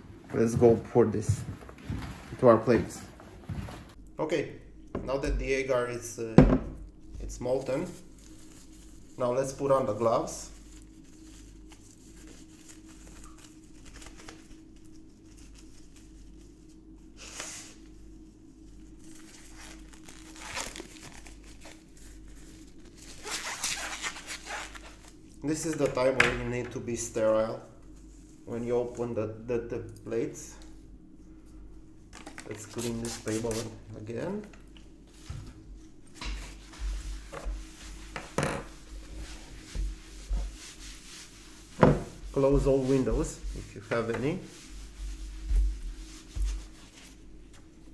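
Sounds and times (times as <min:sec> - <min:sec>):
disposable gloves crinkling: 0:07.5 - 0:17.0, 0:18.6 - 0:25.4, 0:32.1 - 0:33.7
paper towel rubbing on table: 0:36.4 - 0:47.4.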